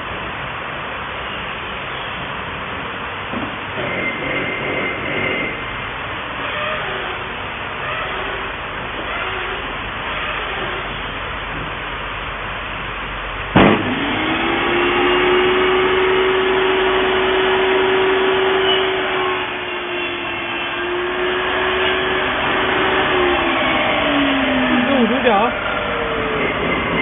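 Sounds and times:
sharp knock: 13.6 - 14.0
table saw cutting wood: 13.6 - 27.0.

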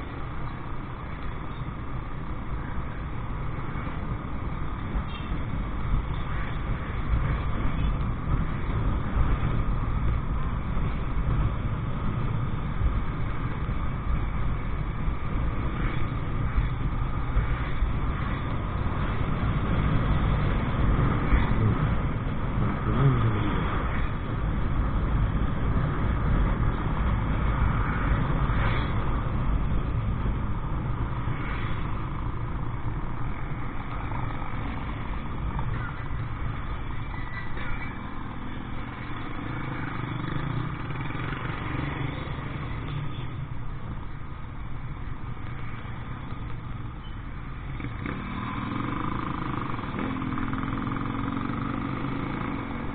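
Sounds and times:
motorcycle engine: 15.8 - 28.9, 47.4 - 52.9.

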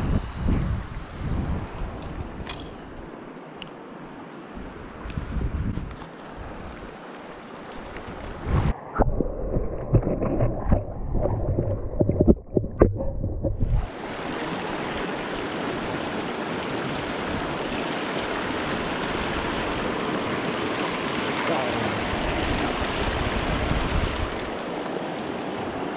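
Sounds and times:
underwater knocks: 9.0 - 13.8
river rapids rushing: 13.9 - 25.9.

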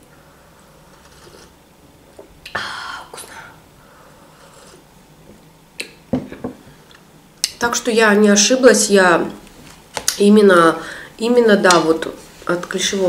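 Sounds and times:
person slurping drink: 0.8 - 1.6, 4.3 - 4.9.

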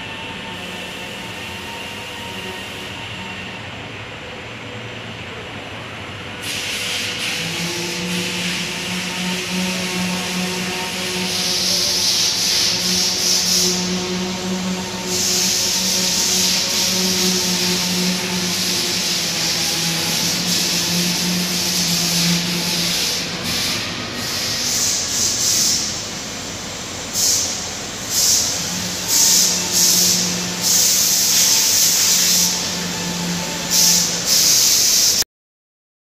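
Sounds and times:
loud bursts of hissing air: 0.0 - 3.6, 6.3 - 35.2
fan hum: 0.0 - 35.2
hiss of moving air: 6.4 - 35.2.

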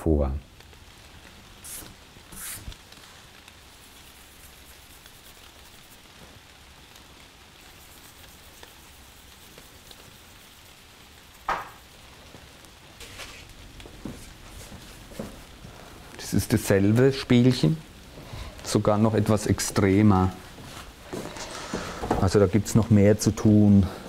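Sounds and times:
light rain: 0.0 - 24.0
sharp knock: 11.5 - 11.8.

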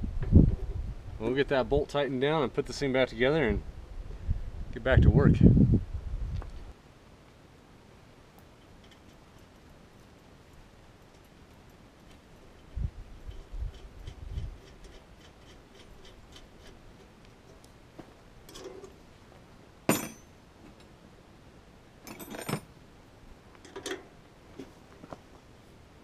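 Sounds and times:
metal parts clinking and rattling: 13.3 - 16.8, 19.9 - 20.3, 22.0 - 22.7.

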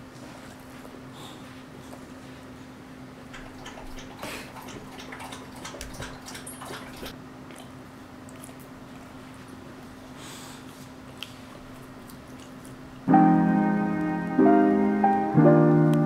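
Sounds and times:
dog lapping water: 3.3 - 8.8.

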